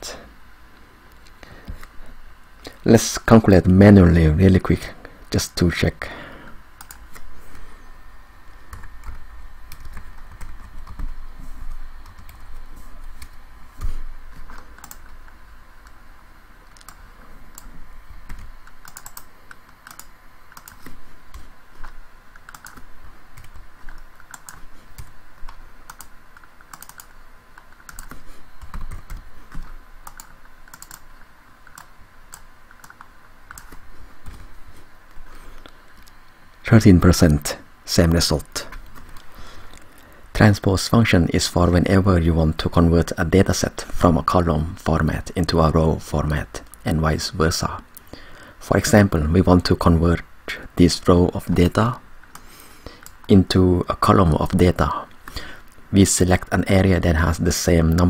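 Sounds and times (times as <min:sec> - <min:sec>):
typing on computer keyboard: 0:18.3 - 0:20.9, 0:21.8 - 0:31.0.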